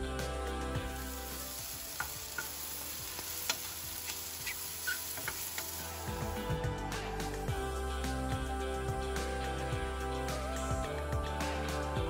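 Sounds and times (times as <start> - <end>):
mushrooms sizzling in frying pan: 0.6 - 6.6.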